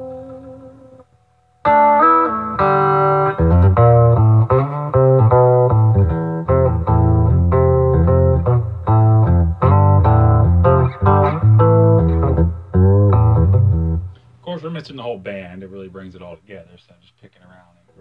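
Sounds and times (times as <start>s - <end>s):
electric guitar chord: 0.0s - 1.0s, 1.6s - 14.1s
electric guitar single-note lines: 0.0s - 14.2s.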